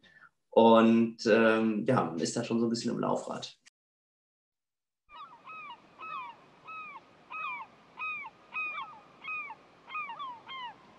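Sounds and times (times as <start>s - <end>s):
bird calling: 5.1s - 10.9s.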